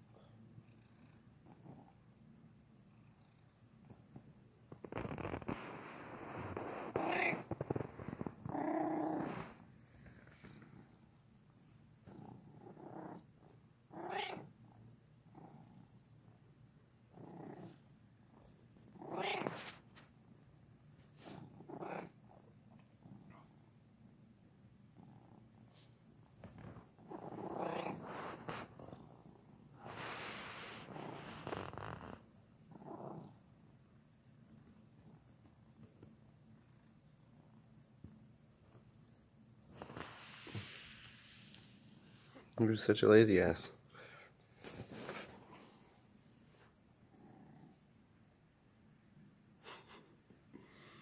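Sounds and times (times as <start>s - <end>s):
cat purring: 0.1s - 43.0s, 43.7s - 51.0s
cat meowing: 14.0s - 14.5s, 19.1s - 19.7s.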